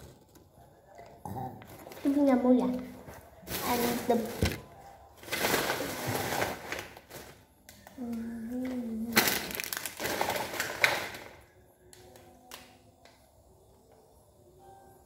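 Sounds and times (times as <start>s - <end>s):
child's voice: 2.0s - 3.0s, 3.6s - 4.5s, 7.9s - 9.4s
plastic wrapper crinkling: 3.4s - 12.7s.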